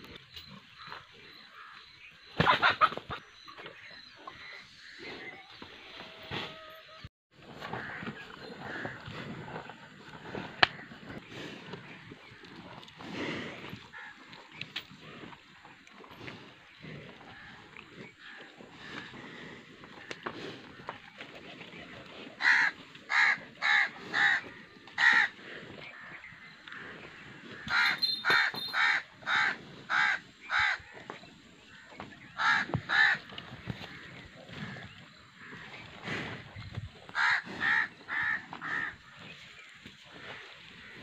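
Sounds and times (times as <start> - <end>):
crow cawing: 22.4 - 24.4, 25.0 - 25.3, 27.6 - 30.8, 32.4 - 33.2, 37.1 - 38.9.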